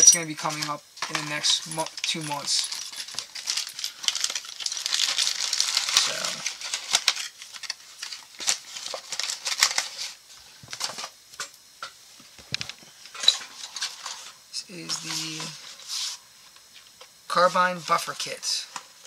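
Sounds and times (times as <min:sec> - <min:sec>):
plastic bags crinkling: 0:01.1 - 0:11.0.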